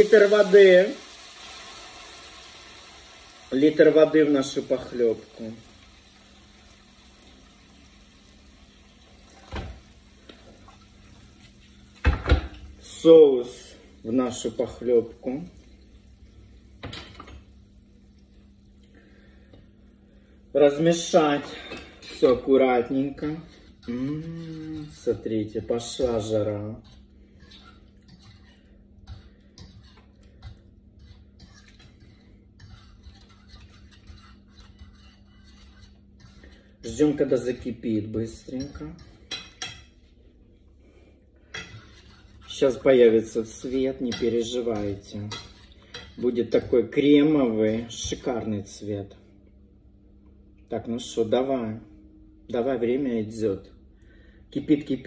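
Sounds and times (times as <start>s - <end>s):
water pouring into a pan: 0.0s - 11.2s
spoon stirring in saucepan: 10.2s - 12.0s, 21.3s - 37.7s, 41.4s - 42.9s, 43.6s - 46.8s.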